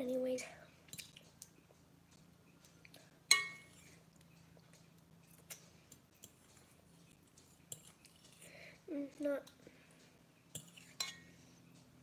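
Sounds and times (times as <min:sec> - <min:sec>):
kitchenware clinking: 0:03.3 - 0:03.8.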